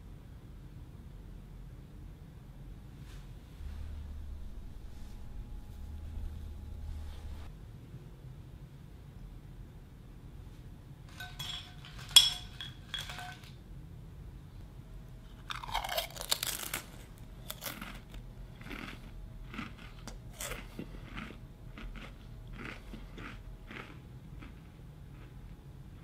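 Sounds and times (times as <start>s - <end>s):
potato chips crunching: 15.4s - 25.6s.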